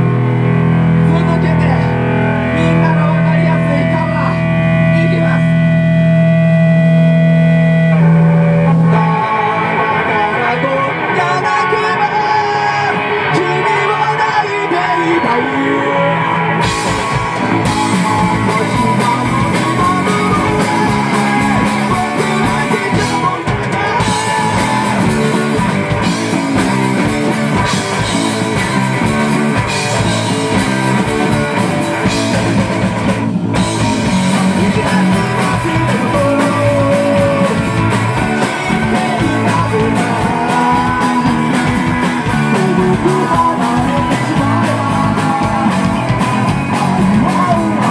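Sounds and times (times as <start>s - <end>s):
electric guitar: 0.0s - 47.9s
person singing: 4.3s - 28.6s, 33.6s - 47.9s
drum kit beat: 16.6s - 47.9s.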